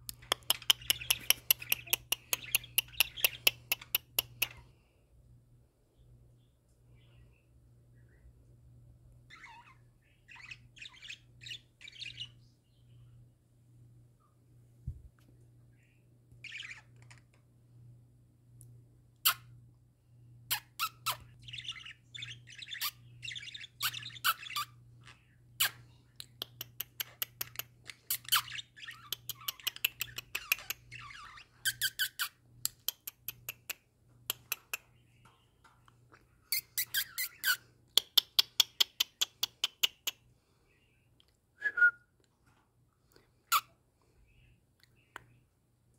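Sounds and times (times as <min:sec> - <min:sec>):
budgerigar clicks: 0:00.1 - 0:04.5
budgerigars warbling and chattering: 0:00.2 - 0:04.6, 0:09.3 - 0:12.4, 0:16.4 - 0:17.2, 0:20.5 - 0:25.8, 0:26.6 - 0:32.4, 0:36.5 - 0:37.6.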